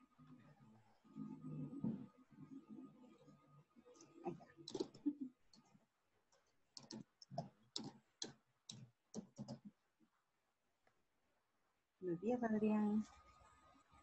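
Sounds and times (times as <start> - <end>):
faint irregular clicking and tapping: 3.2 - 11.0.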